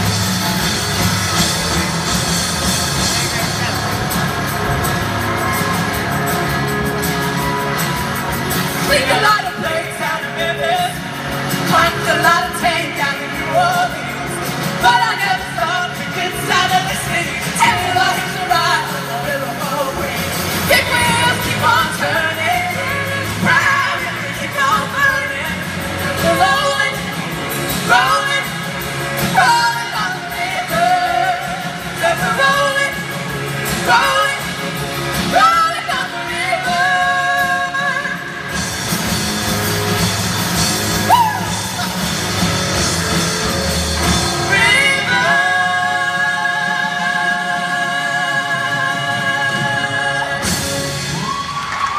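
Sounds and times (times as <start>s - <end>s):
pop-rock band playing: 0.0s - 51.9s
person singing lead vocals: 1.6s - 38.8s, 41.1s - 51.5s.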